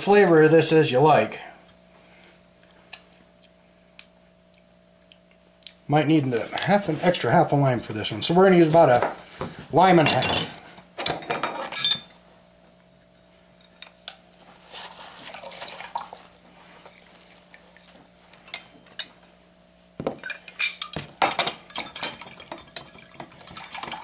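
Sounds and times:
kitchen utensils clattering: 0:10.0 - 0:12.1.

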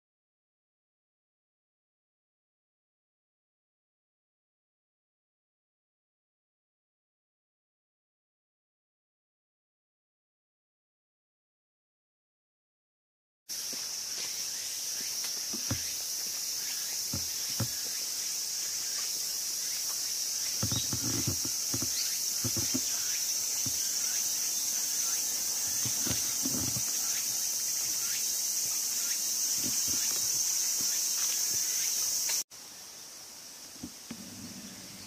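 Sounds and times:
high-pitched insect chorus: 0:13.5 - 0:35.0
footsteps: 0:15.0 - 0:16.4, 0:20.6 - 0:24.1, 0:25.6 - 0:27.0.

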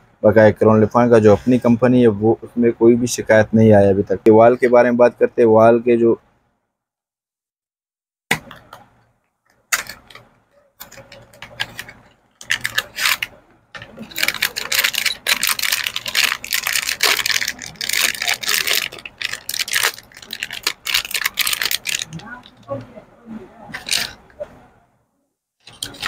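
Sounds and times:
plastic packet crinkling: 0:10.8 - 0:22.7, 0:23.8 - 0:24.2, 0:25.6 - 0:26.0.

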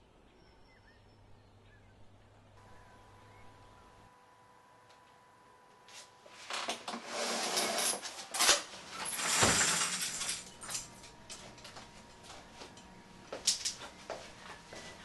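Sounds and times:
window blind rattling and clicking: 0:06.3 - 0:11.4.

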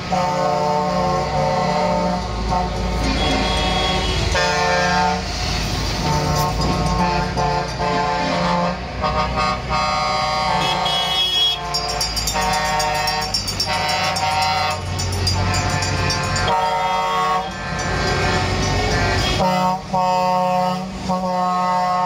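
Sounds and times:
diesel trucks rumbling: 0:00.0 - 0:22.0
multi-tone air horn blasts: 0:00.0 - 0:22.0.

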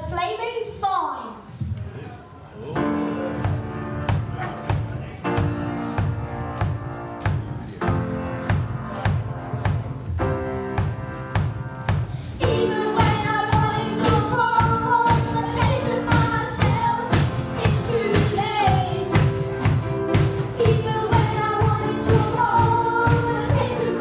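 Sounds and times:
piano chords: 0:02.6 - 0:24.0
steady drum beat: 0:03.3 - 0:24.0
boys singing: 0:20.6 - 0:24.0.

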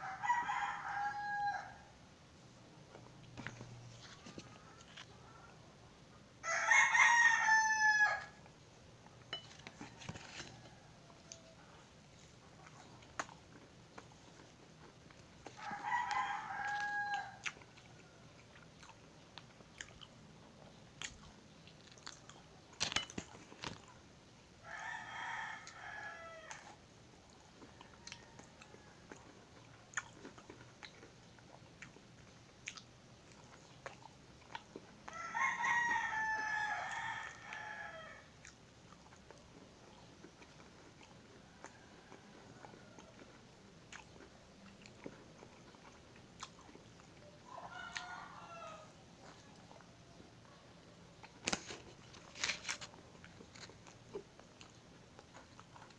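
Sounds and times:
rooster crowing: 0:00.0 - 0:01.9, 0:06.4 - 0:08.4, 0:15.5 - 0:18.4, 0:24.6 - 0:26.8, 0:35.1 - 0:38.4, 0:47.4 - 0:49.4
biting and chewing food: 0:02.8 - 0:05.6, 0:06.5 - 0:55.9.

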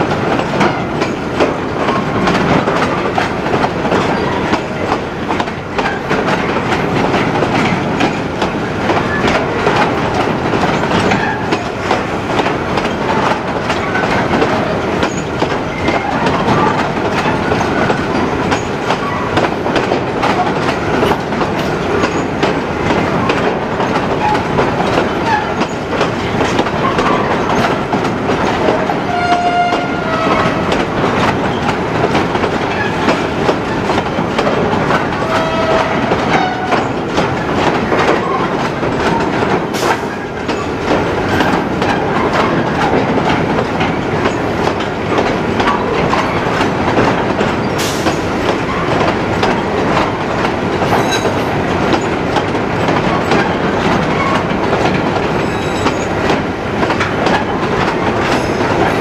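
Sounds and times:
train wheels rumbling on track: 0:00.0 - 0:59.0
wheel squeals: 0:55.4 - 0:56.2.

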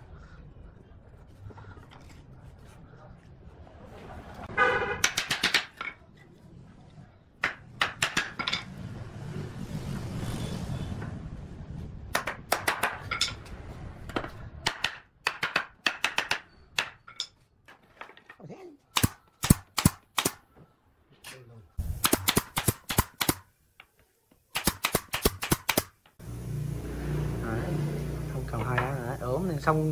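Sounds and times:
hammer tapping wood: 0:05.0 - 0:05.8
wood rubbing: 0:14.1 - 0:18.6.

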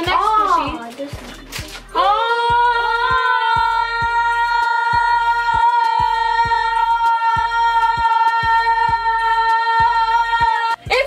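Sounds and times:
steady music beat: 0:00.0 - 0:11.0.

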